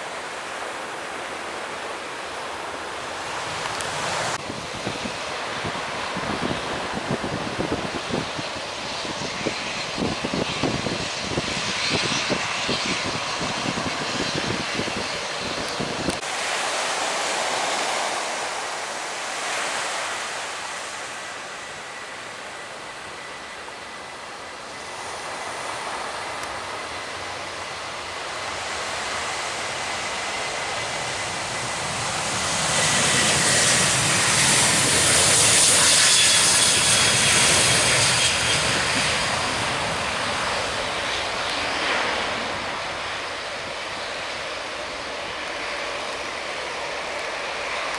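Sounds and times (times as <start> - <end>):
aircraft noise hiss: 0.0 - 47.9
jet engines roaring: 0.0 - 47.9
wind buffeting microphone: 3.3 - 16.3, 28.5 - 45.9.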